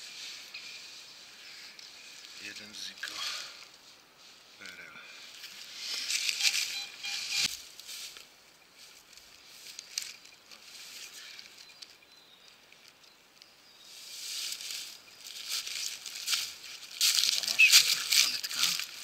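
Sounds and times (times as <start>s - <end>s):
dry leaves rustling and crunching: 5.4s - 6.8s, 7.6s - 11.7s, 13.9s - 19.0s.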